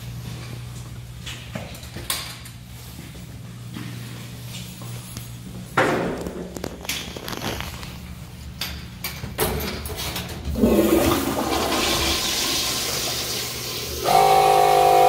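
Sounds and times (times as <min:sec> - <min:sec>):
water rushing into toilet bowl: 0:10.5 - 0:14.9.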